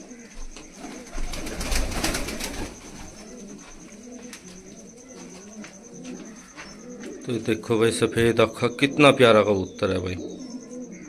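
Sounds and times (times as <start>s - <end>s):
pigeons cooing: 0.0s - 11.0s
wing flapping and scuffling: 0.1s - 7.2s.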